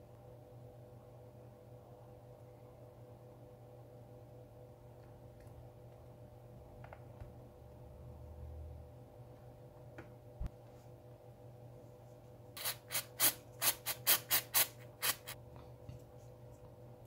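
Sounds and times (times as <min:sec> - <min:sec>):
aerosol spray puffs: 0:12.6 - 0:15.4.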